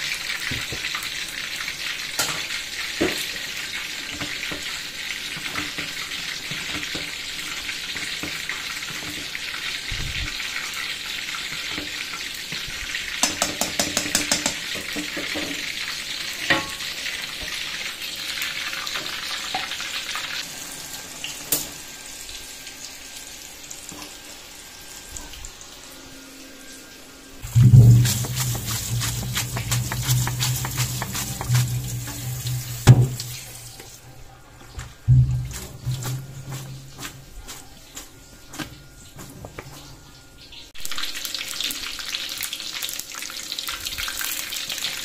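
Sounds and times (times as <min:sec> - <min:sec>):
pot boiling hiss: 0:00.0 - 0:26.0, 0:27.4 - 0:34.1, 0:34.8 - 0:38.2.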